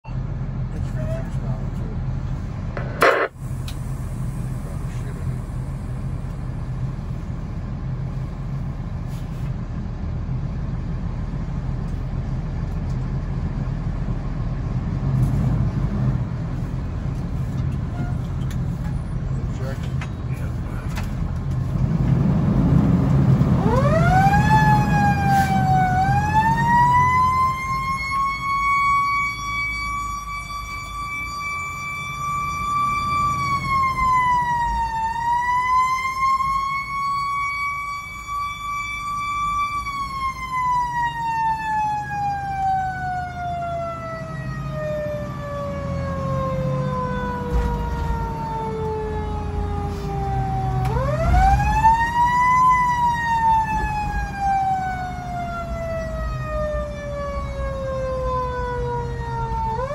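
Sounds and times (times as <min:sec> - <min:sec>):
truck engine rumble: 0:00.0 - 0:59.9
mechanical siren wailing: 0:23.4 - 0:59.9.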